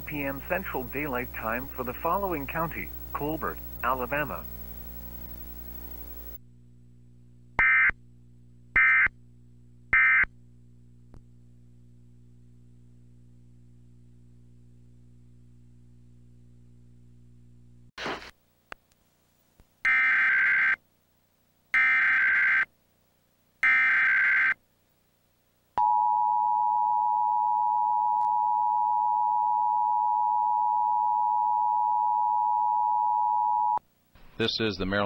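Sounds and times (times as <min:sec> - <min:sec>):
data tone bursts: 0:00.0 - 0:06.4.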